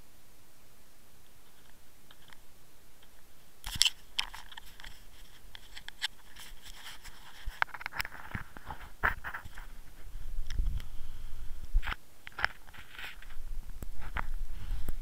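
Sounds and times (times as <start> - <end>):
faint hiss: 0.0 - 15.0
camera handling clicks and rubs: 3.6 - 9.7.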